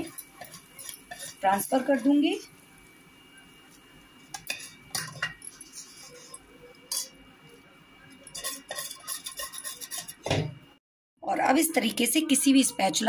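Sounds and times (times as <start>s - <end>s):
spoon scraping and clinking on plate: 0.0s - 2.1s, 4.3s - 7.2s, 8.1s - 10.4s.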